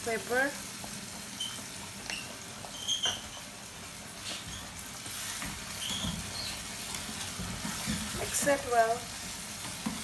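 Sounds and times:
vegetables sizzling in oil: 0:00.0 - 0:10.0
wooden spatula stirring: 0:04.2 - 0:10.0.

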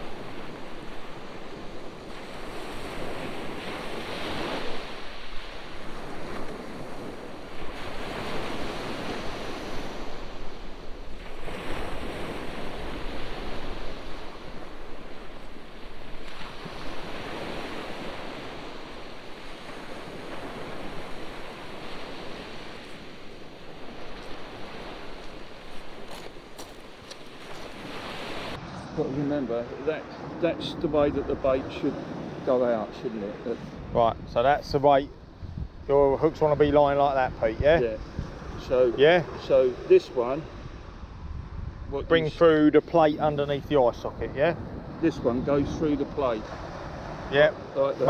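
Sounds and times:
surf breaking on beach: 0:00.0 - 0:34.6
wind buffeting microphone: 0:33.4 - 0:48.0.

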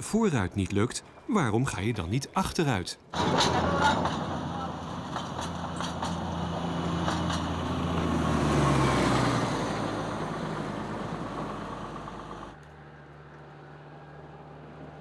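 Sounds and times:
distant engine hum: 0:03.1 - 0:15.0
diesel locomotive passing close by: 0:03.2 - 0:15.0.

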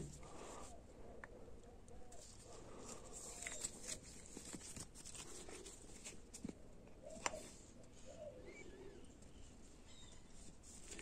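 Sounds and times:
soft handling rustles: 0:02.1 - 0:11.0.

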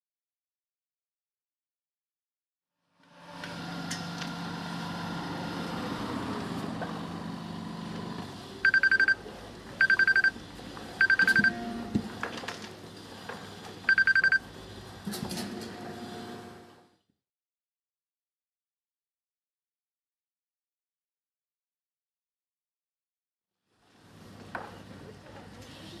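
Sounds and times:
excavator engine running: 0:03.1 - 0:12.9
trilling high warning beeps: 0:08.6 - 0:09.2, 0:09.8 - 0:10.4, 0:11.0 - 0:11.7, 0:13.9 - 0:14.5.

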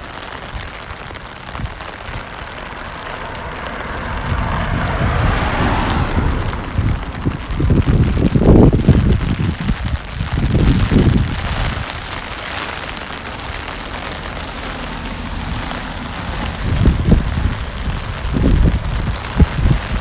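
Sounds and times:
rain pattering on an umbrella: 0:00.0 - 0:20.0
low rumbling bursts: 0:01.1 - 0:20.0.

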